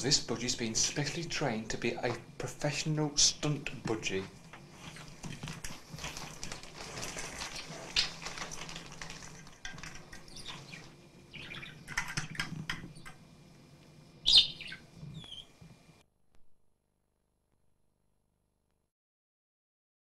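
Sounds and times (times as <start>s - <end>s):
bird squawk: 7.4s - 8.2s, 10.3s - 12.0s, 14.2s - 15.5s
budgerigar chirping: 7.5s - 8.2s, 10.3s - 11.9s, 14.2s - 15.6s.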